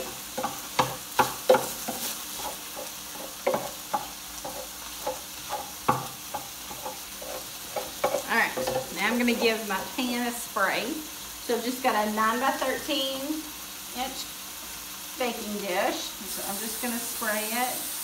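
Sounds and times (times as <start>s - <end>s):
utensil tapping and scraping pan: 0.0s - 9.9s
meat sizzling in a skillet: 0.0s - 18.0s.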